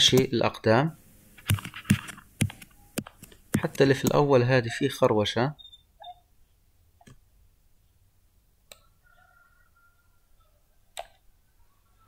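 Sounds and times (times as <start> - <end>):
computer mouse clicks: 1.4 - 4.2.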